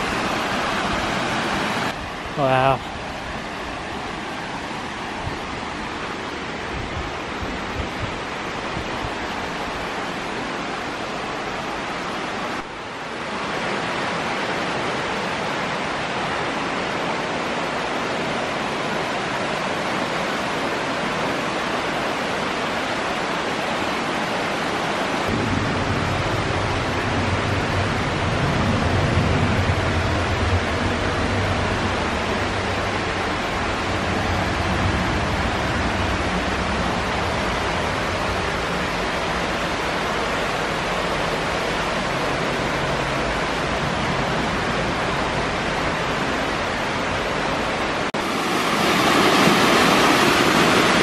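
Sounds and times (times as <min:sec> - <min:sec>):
stream rushing over rocks: 0:00.0 - 0:51.0
low rumble: 0:25.3 - 0:39.6.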